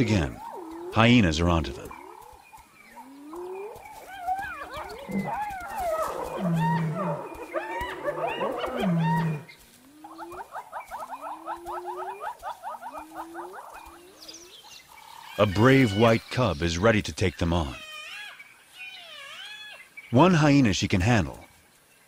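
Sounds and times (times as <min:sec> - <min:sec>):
hyenas yelping: 0:00.0 - 0:16.1
hyenas whooping: 0:03.0 - 0:14.5.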